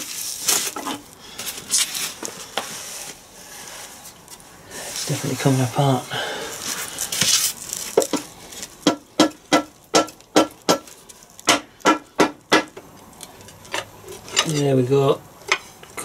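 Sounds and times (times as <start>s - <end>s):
scraping rustle: 0.0s - 8.8s.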